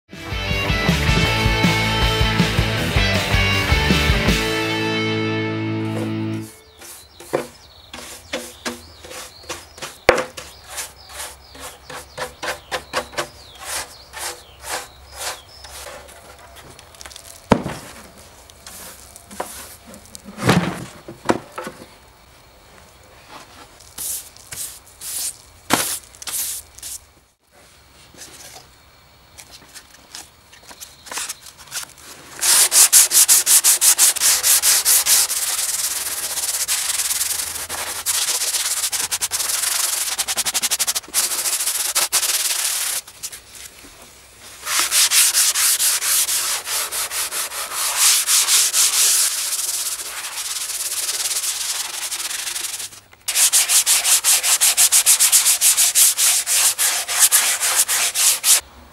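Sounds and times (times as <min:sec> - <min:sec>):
brush sweeps: 0:05.8 - 0:20.9, 0:23.2 - 0:28.6, 0:31.1 - 0:58.6
sandpaper rubbing on wood: 0:05.9 - 0:16.1, 0:32.4 - 0:43.1, 0:44.6 - 0:58.6.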